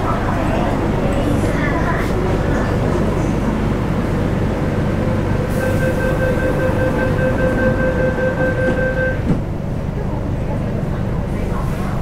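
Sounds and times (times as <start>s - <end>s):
train interior rumble: 0.0s - 12.0s
steady high tone: 5.5s - 9.2s.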